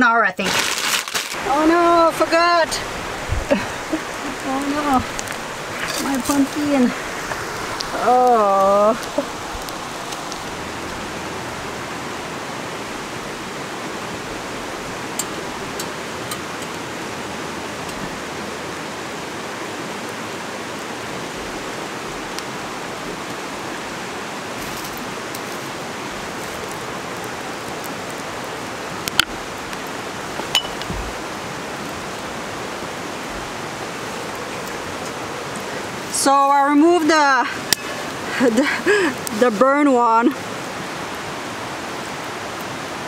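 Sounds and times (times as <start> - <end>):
river flowing: 0.0 - 43.0.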